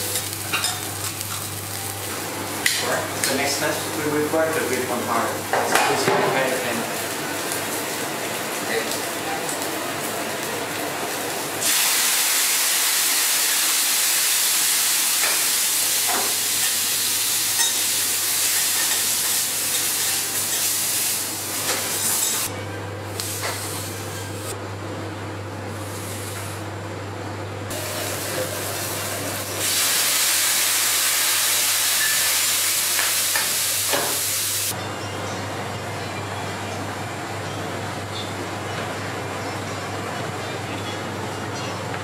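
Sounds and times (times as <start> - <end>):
food sizzling on griddle: 0.0 - 2.8, 3.5 - 22.5, 27.7 - 34.7.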